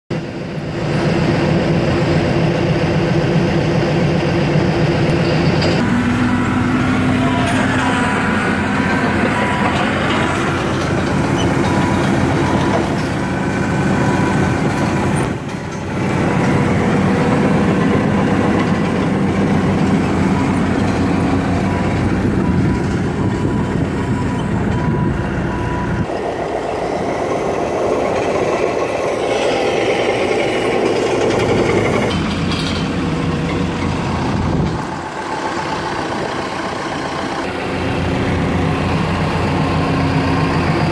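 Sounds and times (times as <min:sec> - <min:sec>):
excavator diesel engine idling: 0:00.2 - 0:40.9.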